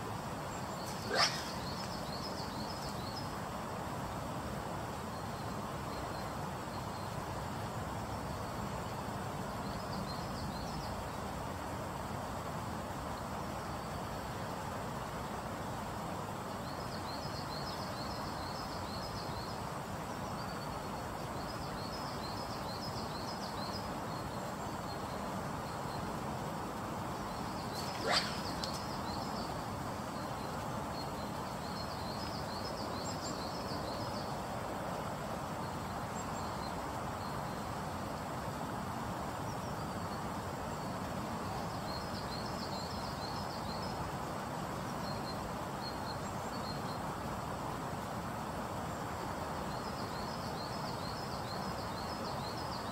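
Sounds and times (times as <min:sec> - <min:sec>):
fast river rushing: 0:00.0 - 0:02.4, 0:25.6 - 0:32.2
songbird trilling: 0:00.7 - 0:02.9, 0:27.6 - 0:29.6.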